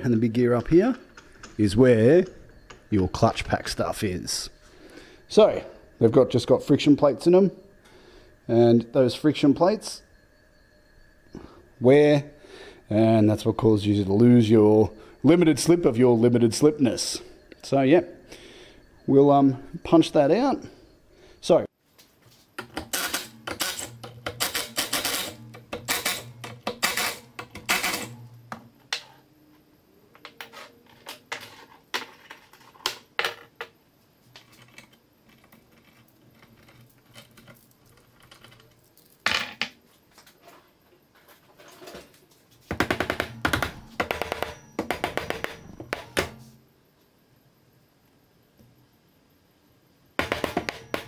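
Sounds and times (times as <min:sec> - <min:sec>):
impact wrench hammering: 0:42.7 - 0:46.5, 0:50.2 - 0:51.0.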